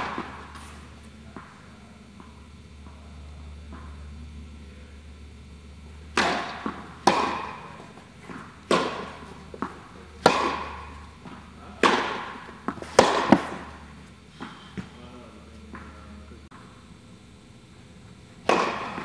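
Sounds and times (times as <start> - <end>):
rackets hitting tennis balls: 0.0 - 4.2, 5.8 - 16.8, 18.4 - 19.0
steady low hum: 0.0 - 19.0
tennis ball bounces: 6.1 - 13.8, 18.4 - 19.0.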